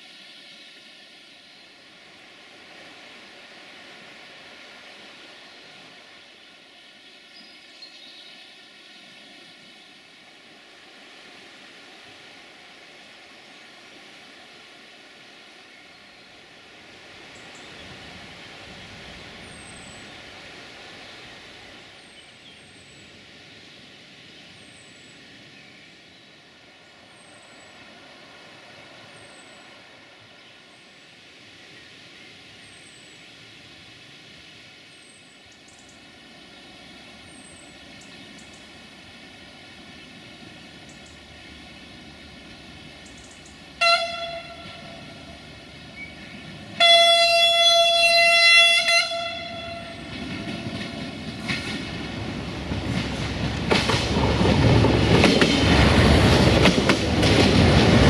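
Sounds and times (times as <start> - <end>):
low rumble of train: 0.0 - 58.0
train horn: 43.8 - 45.6, 46.7 - 50.9.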